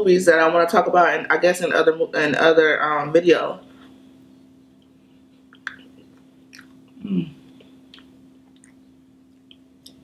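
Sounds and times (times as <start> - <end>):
close chewing and mouth clicks: 5.5 - 6.9, 7.9 - 10.0
person humming: 7.0 - 7.4.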